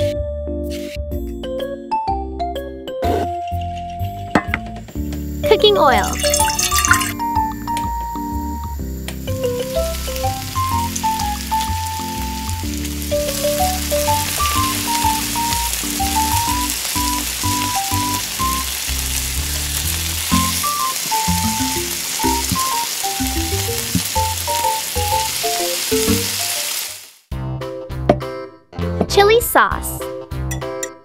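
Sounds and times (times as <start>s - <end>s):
light background music: 0.0s - 26.4s
oil sizzling in wok: 4.9s - 27.3s.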